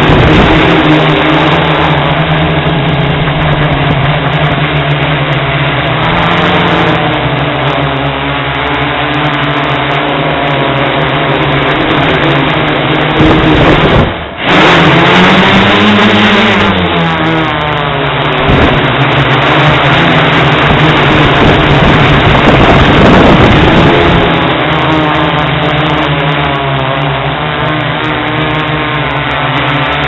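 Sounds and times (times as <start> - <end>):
drone propellers droning: 0.0 - 30.0.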